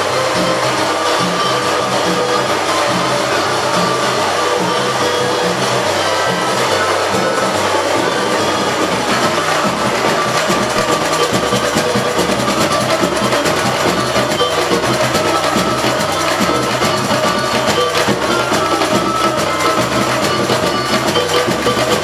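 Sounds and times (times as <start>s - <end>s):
bass drums pulsing: 0.0s - 22.0s
hand percussion clatter: 0.0s - 22.0s.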